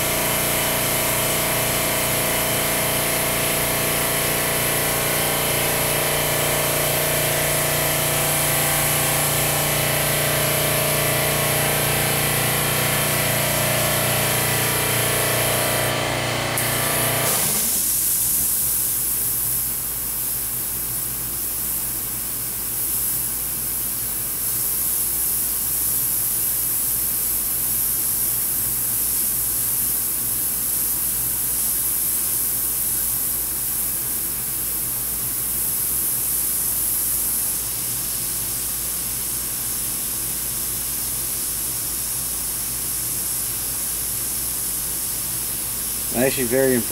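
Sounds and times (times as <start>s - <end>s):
air compressor humming: 0.0s - 46.9s
airbrush hissing: 45.0s - 46.9s.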